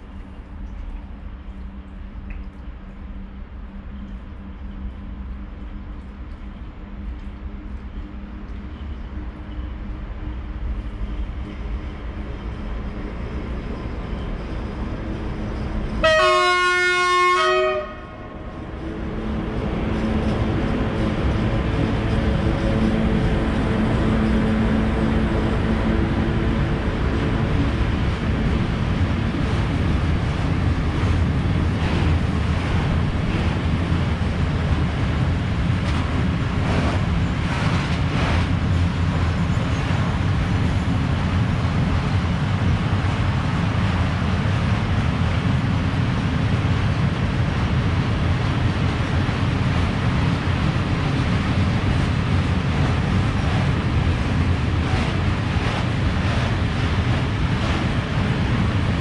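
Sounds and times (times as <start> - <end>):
rumble of train wheels on rail: 0.0 - 59.0
sharp clacks of train wheels: 28.0 - 42.1, 43.0 - 59.0.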